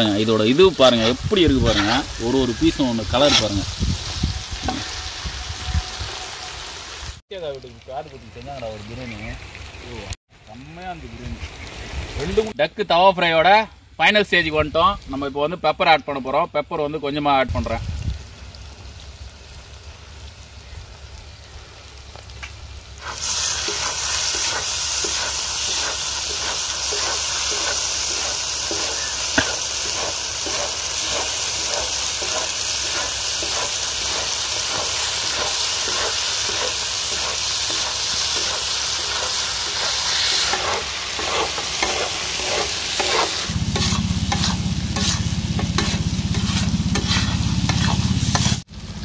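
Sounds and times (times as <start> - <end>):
meat sizzling in gravy: 0.0 - 12.6, 17.6 - 49.0
metal spatula scraping: 0.7 - 6.7, 23.0 - 48.6.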